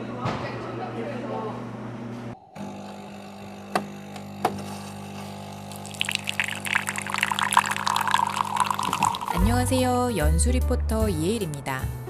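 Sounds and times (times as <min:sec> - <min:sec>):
liquid pouring and splashing: 0:05.7 - 0:09.6.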